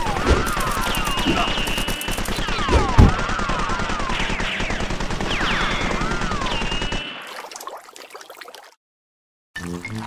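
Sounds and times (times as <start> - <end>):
rapid machine-gun-like clatter: 0.0 - 7.2
sliding whistling zaps: 0.2 - 2.8.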